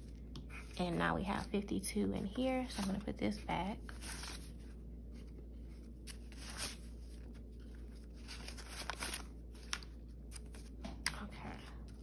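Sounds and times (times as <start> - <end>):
paper bills rustling: 3.9 - 10.8.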